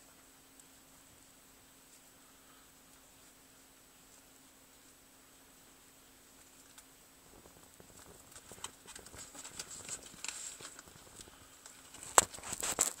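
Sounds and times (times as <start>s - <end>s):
lizard claws scratching on bark: 11.8s - 13.0s.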